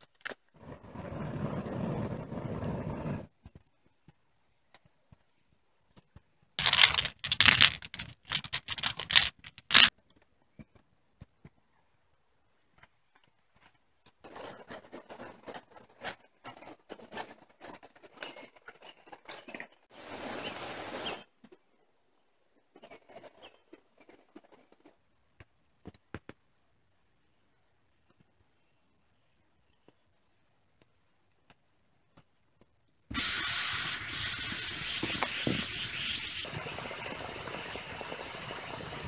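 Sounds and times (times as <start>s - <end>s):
campfire crackling: 0.0s - 3.7s, 30.8s - 39.0s
stones clicking: 6.6s - 9.9s.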